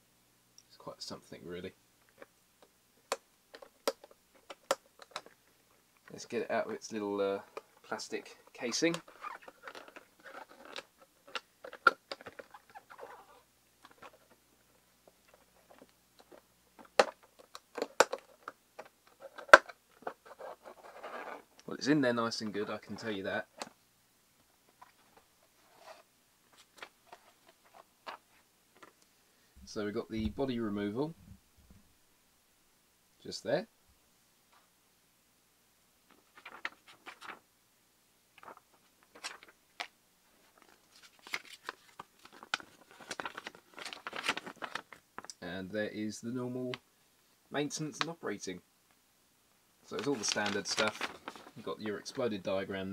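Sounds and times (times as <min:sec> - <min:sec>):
paper rustling and crinkling: 0:08.6 - 0:14.4, 0:15.3 - 0:21.4, 0:36.1 - 0:37.4, 0:38.4 - 0:45.3, 0:49.9 - 0:52.2
packaging clicks and crinkles: 0:40.5 - 0:45.4, 0:49.9 - 0:51.6.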